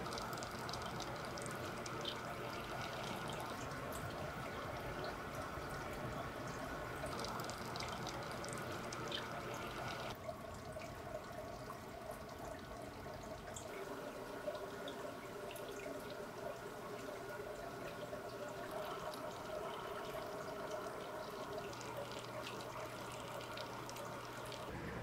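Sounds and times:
drip ticks: 0:00.0 - 0:05.8, 0:06.5 - 0:13.7, 0:18.7 - 0:24.7
aquarium water trickling: 0:00.0 - 0:25.0.

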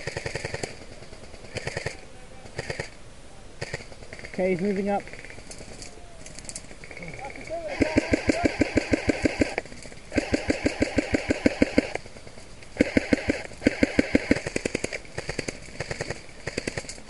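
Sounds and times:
airsoft rifle firing full auto: 0:00.0 - 0:02.0, 0:07.6 - 0:12.1, 0:12.8 - 0:17.0.

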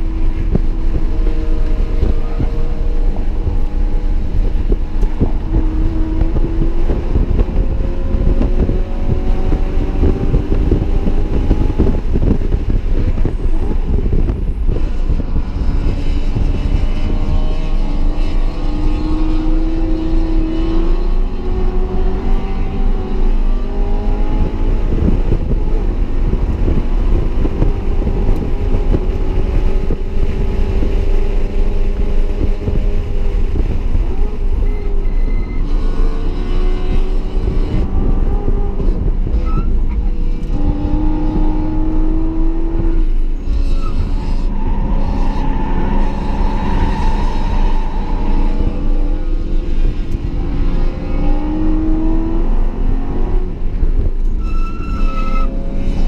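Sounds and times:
car engine revving hard: 0:00.0 - 0:56.0
wind noise: 0:00.0 - 0:56.0.

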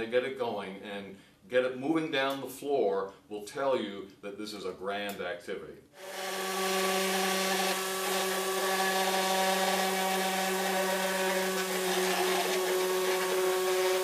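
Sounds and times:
small electric motor humming: 0:06.0 - 0:14.0.

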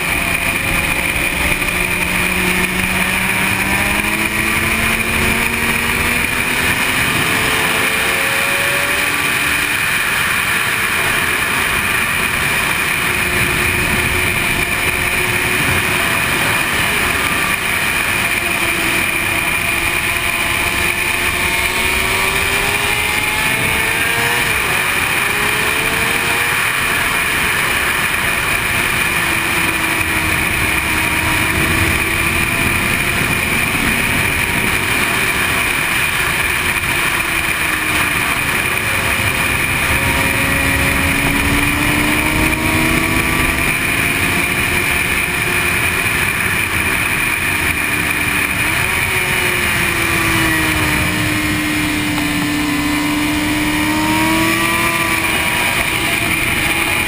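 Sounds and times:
motorcycle engine revving: 0:00.0 - 0:57.0
wind rush: 0:26.5 - 0:57.0.

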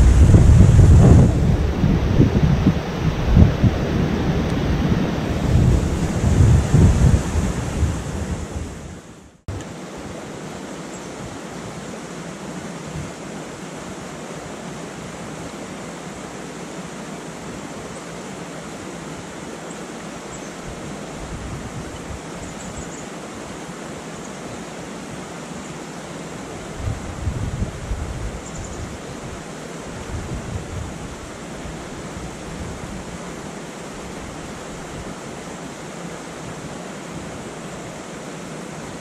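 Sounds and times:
wind rumble on microphone: 0:00.0 - 0:09.6, 0:20.6 - 0:22.8, 0:26.6 - 0:35.2
river rapids rushing: 0:00.0 - 0:39.0.

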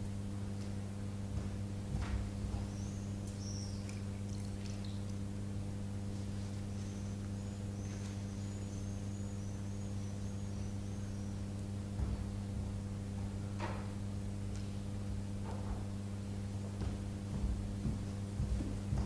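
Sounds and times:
steady low hum: 0:00.0 - 0:19.0
water trickling from glass: 0:03.8 - 0:05.3.

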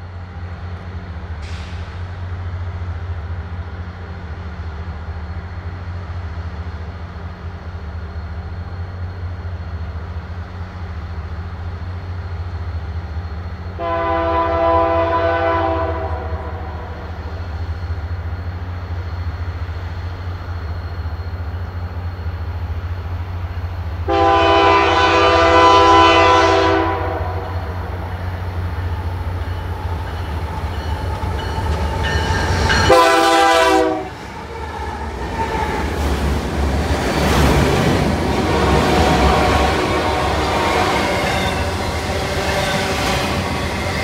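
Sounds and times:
locomotive rumble: 0:00.0 - 0:44.0
train horn blasts: 0:13.8 - 0:17.1, 0:24.0 - 0:27.9, 0:32.1 - 0:34.2, 0:38.4 - 0:43.4.

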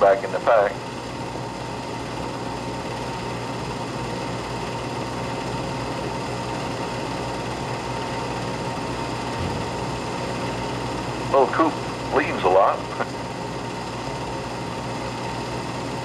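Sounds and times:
film projector whirring: 0:00.0 - 0:16.0.

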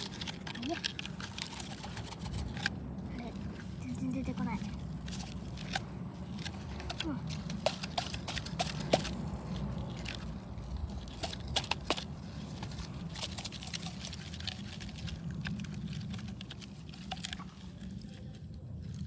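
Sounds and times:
plastic toy trucks clicking: 0:06.4 - 0:14.4.

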